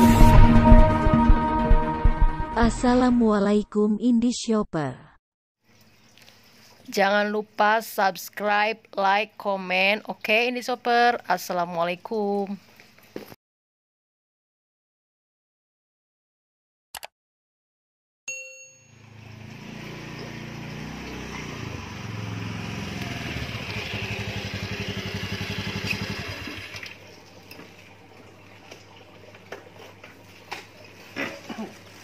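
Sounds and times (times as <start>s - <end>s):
scooter engine running and idling: 19.0s - 27.0s.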